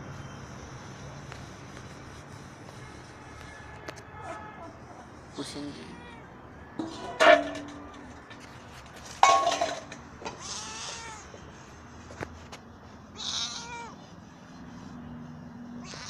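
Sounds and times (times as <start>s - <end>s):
rustling bumps from handling: 6.8s - 10.5s
kittens mewing: 13.1s - 14.0s, 15.8s - 16.0s.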